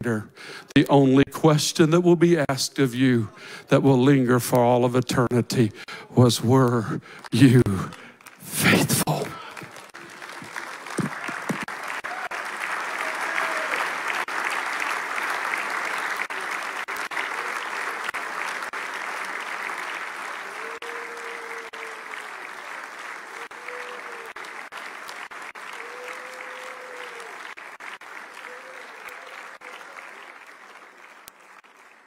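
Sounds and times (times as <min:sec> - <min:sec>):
people applauding: 0:07.2 - 0:32.0.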